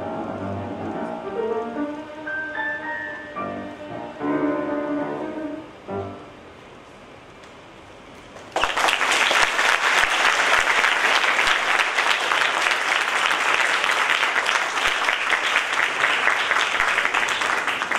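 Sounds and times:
audience applauding: 8.4s - 17.9s.

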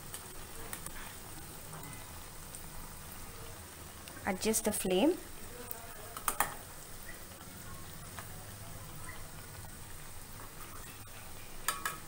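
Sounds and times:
food sizzling in oil: 0.0s - 12.0s
spatula clattering against pan: 11.7s - 12.0s.

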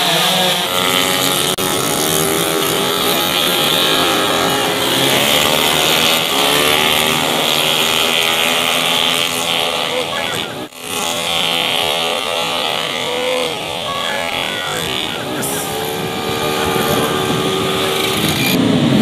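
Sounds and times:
racing motorcycles revving: 0.0s - 19.0s.

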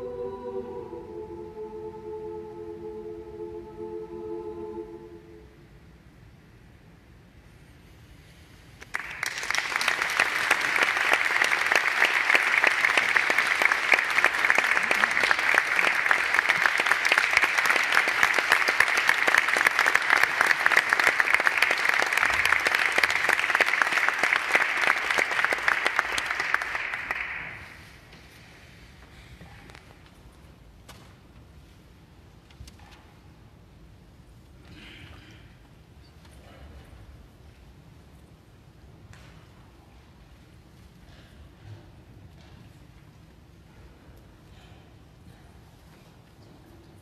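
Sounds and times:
audience applauding: 8.8s - 27.9s.

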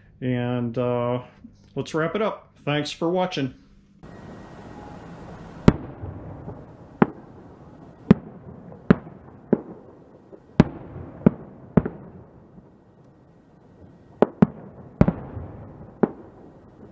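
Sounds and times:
steady hiss: 0.0s - 10.6s
fireworks bangs: 4.0s - 16.9s.

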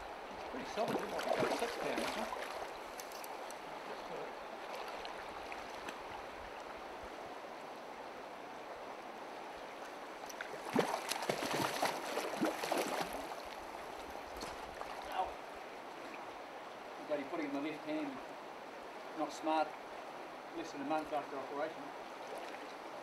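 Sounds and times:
river flowing over stones: 0.0s - 23.0s
splashes and knocks: 0.7s - 3.3s, 10.3s - 13.4s.

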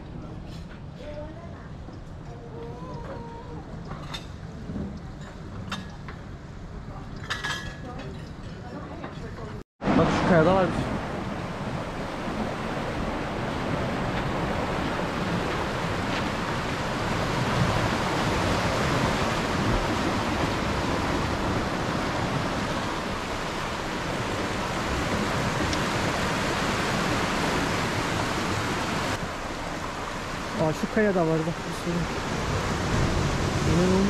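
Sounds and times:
surf washing among rocks: 9.8s - 34.0s.

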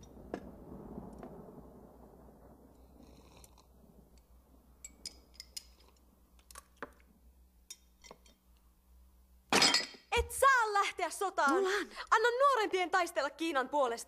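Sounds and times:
porcelain teacups clinking: 4.8s - 6.0s.

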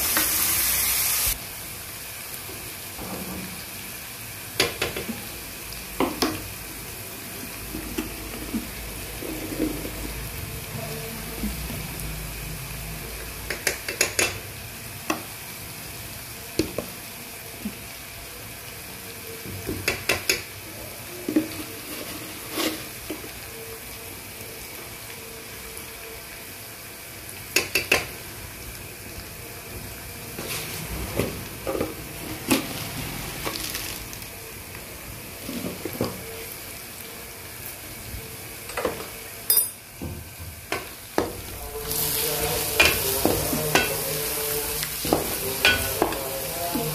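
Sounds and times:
paste sizzling in oil: 0.0s - 46.9s
steel spoons clinking on pan: 39.5s - 39.8s.

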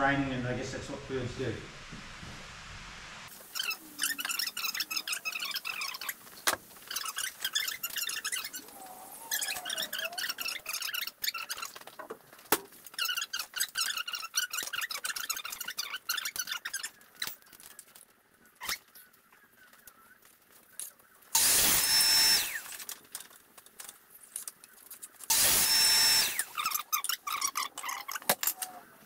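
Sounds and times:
mitre saw cutting timber: 21.4s - 22.7s, 25.3s - 26.8s.

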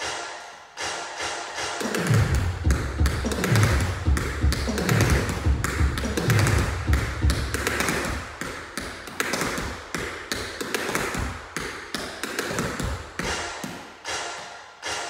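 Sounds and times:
tap shoes clicking on floor: 2.0s - 13.8s.

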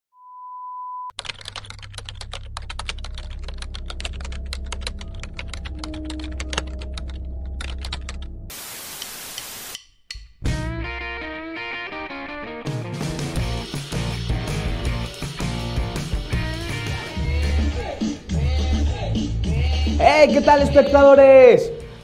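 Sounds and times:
typing clicks: 1.2s - 8.3s
low hum: 1.2s - 8.5s
static hiss: 8.5s - 9.8s.

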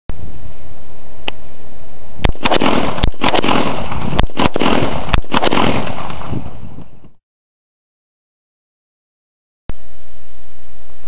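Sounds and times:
steady noisy hiss: 0.1s - 5.4s, 9.7s - 11.0s
rifle shots: 2.2s - 7.0s.

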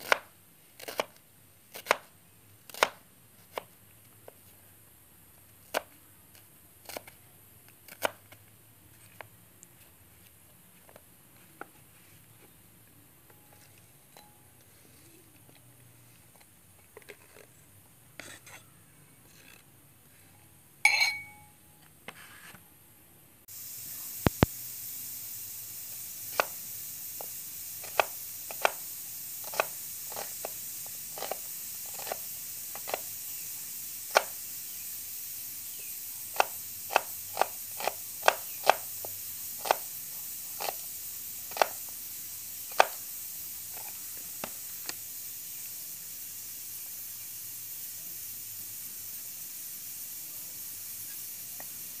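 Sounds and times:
steady hiss: 0.0s - 52.0s
glass bowl clink: 14.1s - 14.5s, 20.8s - 21.6s.

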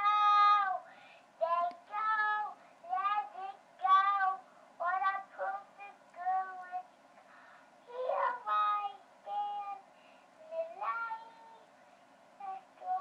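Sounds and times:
child singing through monitor speaker: 0.0s - 0.8s, 1.4s - 6.9s, 7.8s - 11.8s, 12.4s - 13.0s.

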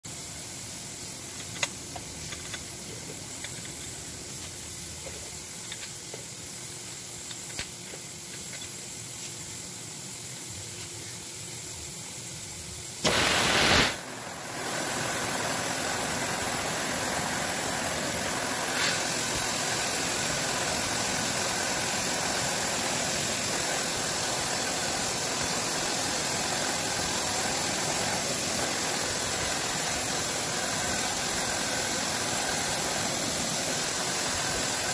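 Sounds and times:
milling machine spindle running: 13.2s - 34.9s.

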